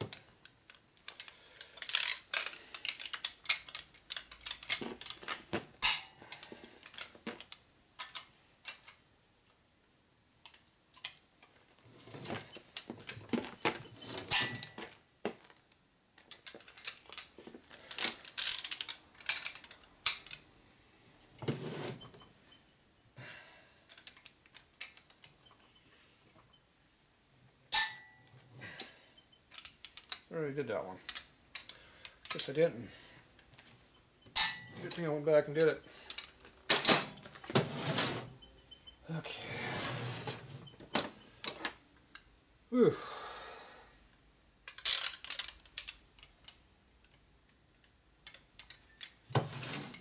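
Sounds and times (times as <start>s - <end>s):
ratchet wrench clicking: 1.1s - 5.2s, 17.9s - 20.4s, 44.7s - 46.0s.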